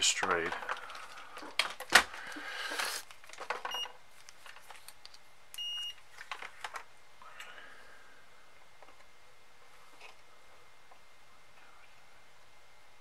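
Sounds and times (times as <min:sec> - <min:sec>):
multimeter beeping: 0:05.6 - 0:06.0.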